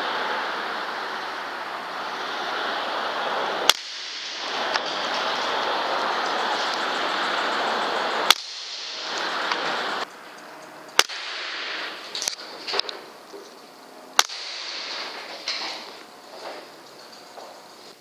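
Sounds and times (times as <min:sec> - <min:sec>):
steady rushing noise: 0:00.0 - 0:18.0
air rifle shots: 0:03.6 - 0:07.3, 0:08.1 - 0:10.1, 0:11.0 - 0:13.2, 0:14.2 - 0:16.0.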